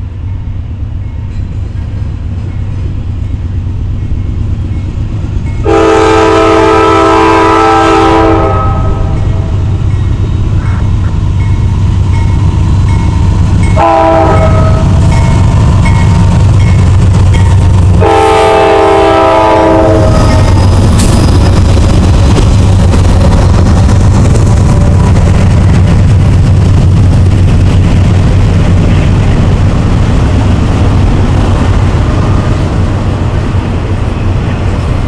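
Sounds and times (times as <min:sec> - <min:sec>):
diesel locomotive engines rumbling: 0:00.0 - 0:35.0
train air horn blasts: 0:05.6 - 0:09.5, 0:13.8 - 0:15.1, 0:18.0 - 0:20.6.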